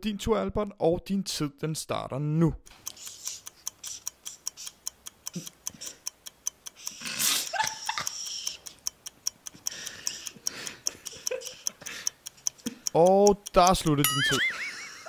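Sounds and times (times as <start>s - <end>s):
clock ticking: 2.6s - 15.0s
laughter: 7.3s - 8.3s, 10.9s - 11.9s, 14.1s - 15.0s.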